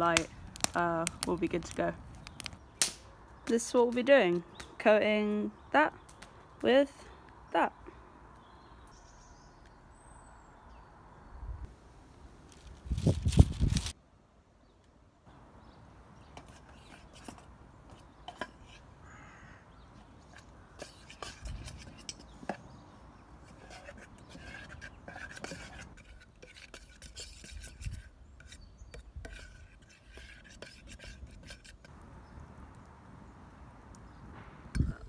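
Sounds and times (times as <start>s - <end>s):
faint birds calling: 14.6s - 25.8s
metal spoon stirring in saucepan: 20.2s - 31.9s.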